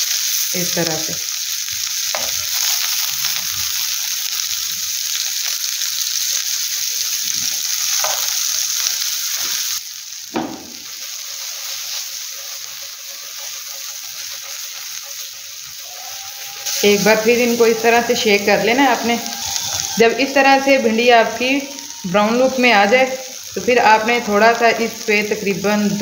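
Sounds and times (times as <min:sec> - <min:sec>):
okra sizzling in oil: 0:00.0 - 0:26.0
pan knock: 0:10.4 - 0:10.8.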